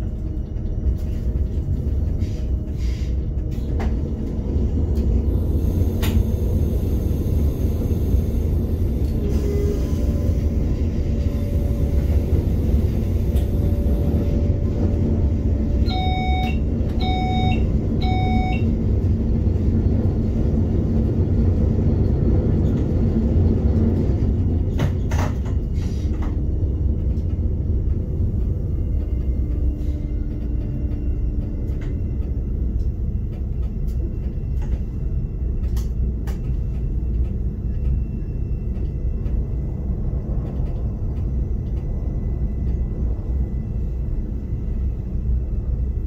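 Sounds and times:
train wheels rumbling on rail: 0.0 - 46.0
short electronic beeps: 15.9 - 18.6.

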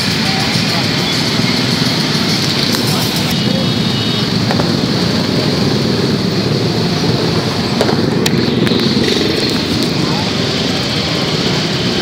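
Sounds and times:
crowd noise: 0.0 - 12.0
motorcycle and car engines: 0.0 - 12.0.

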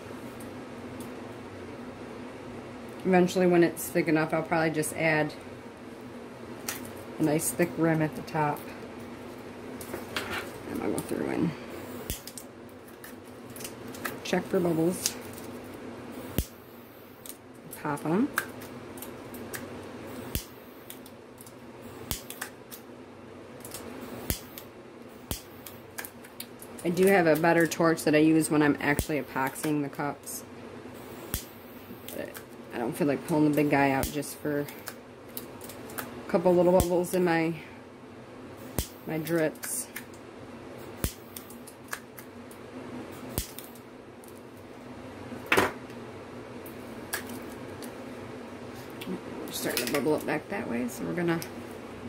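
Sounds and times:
faint steady hum: 0.0 - 52.0
torch lighter clicking: 23.7 - 24.7.

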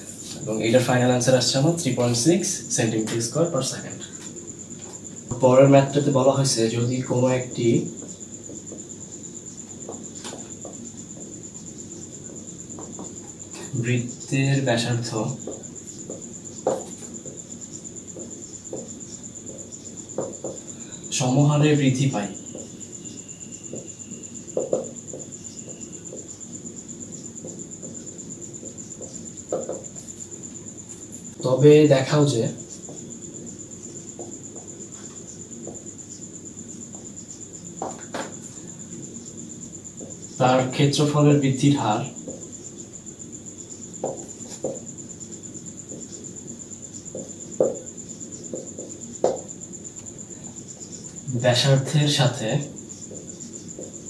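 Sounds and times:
high-pitched pulsing whine: 0.0 - 54.0
marker writing on whiteboard: 7.2 - 14.3, 15.3 - 20.8, 22.2 - 31.2, 32.6 - 38.6, 42.1 - 42.9, 43.8 - 49.6, 53.0 - 54.0
whiteboard marker writing: 15.3 - 20.7, 27.3 - 30.3.

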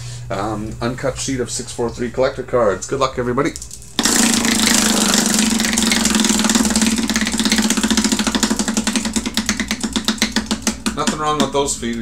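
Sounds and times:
prize wheel clicking: 3.6 - 11.1.

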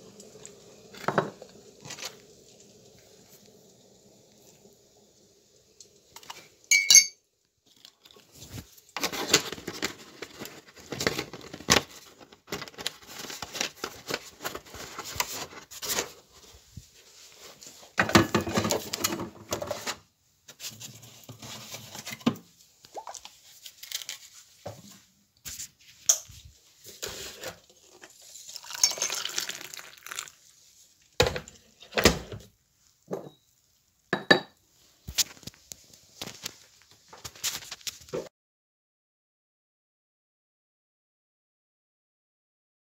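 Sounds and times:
cutlery and crockery clinking: 6.2 - 7.2.

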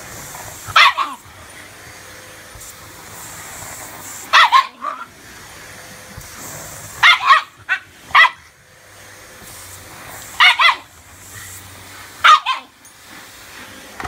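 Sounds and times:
vacuum cleaner running: 0.0 - 14.0
dog barking sharply: 0.7 - 1.2, 4.3 - 5.1, 7.0 - 8.4, 10.4 - 10.9, 12.2 - 12.7.

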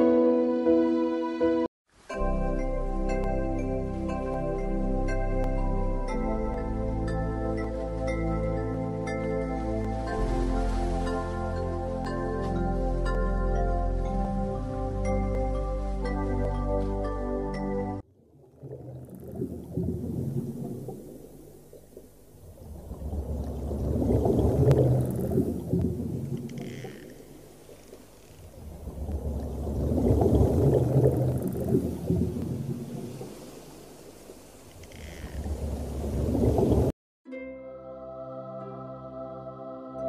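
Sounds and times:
deep muffled underwater rumble: 18.2 - 33.6, 34.3 - 36.9.

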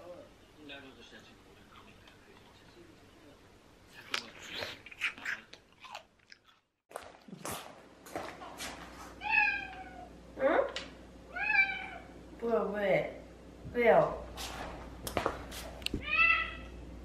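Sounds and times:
person chewing: 4.0 - 7.8
cat meowing: 9.2 - 10.1, 11.3 - 12.1, 16.0 - 16.8.

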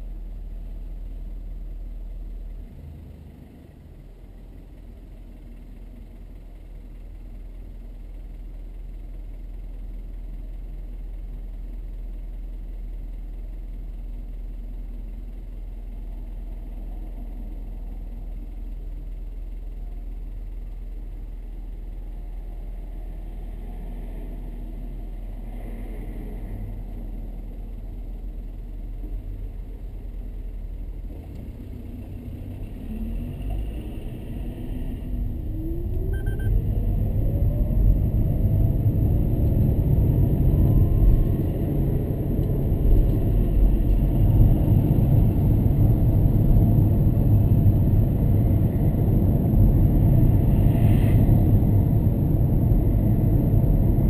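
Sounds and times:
car cabin low rumble: 0.0 - 54.0
rising tone of car pulling away: 31.0 - 54.0.

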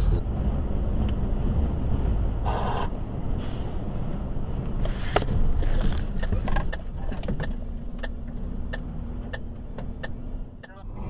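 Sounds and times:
truck engine and road rumble: 0.0 - 11.0
even ticking: 6.0 - 10.8.

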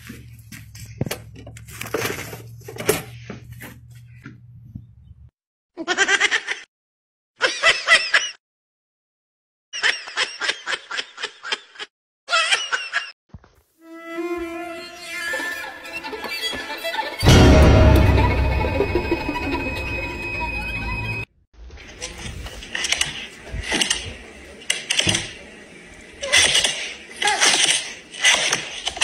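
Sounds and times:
low hum: 17.2 - 21.3.

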